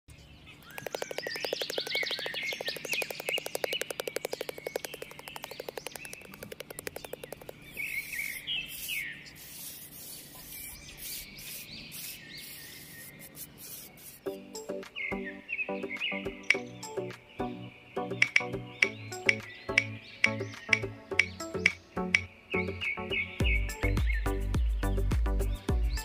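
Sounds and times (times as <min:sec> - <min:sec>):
birds chirping: 0:00.1 - 0:26.0
fast pulsing trill: 0:00.7 - 0:10.0
brief scratchy noises: 0:07.9 - 0:14.3.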